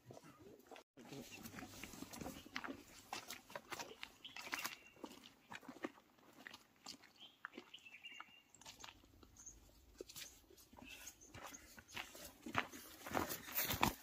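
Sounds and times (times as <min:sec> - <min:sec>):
footsteps on dry leaves and gravel: 0:01.0 - 0:14.0.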